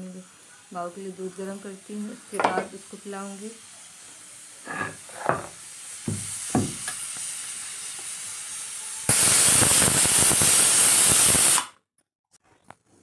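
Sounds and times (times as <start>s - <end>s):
pressure cooker whistle: 8.6s - 11.7s.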